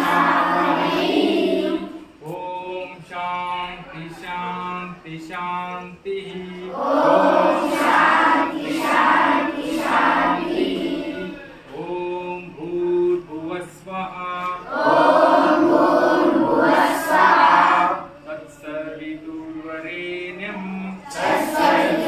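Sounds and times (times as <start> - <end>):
children chanting in unison: 0.0 - 2.3, 6.3 - 12.4, 14.6 - 18.9, 19.9 - 22.0.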